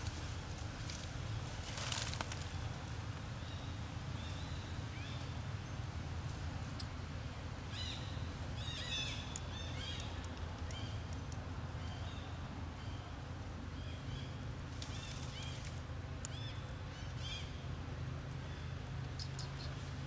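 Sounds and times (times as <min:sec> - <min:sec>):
steady low rumble: 0:00.0 - 0:20.0
short high chirping calls: 0:19.2 - 0:19.9.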